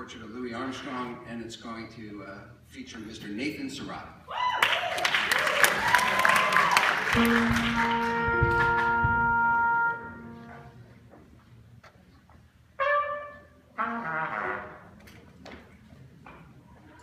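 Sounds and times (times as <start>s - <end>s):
jazz band horns holding notes: 7.1s - 11.1s, 12.8s - 15.0s
trumpet short notes: 7.2s - 10.8s, 12.8s - 14.9s.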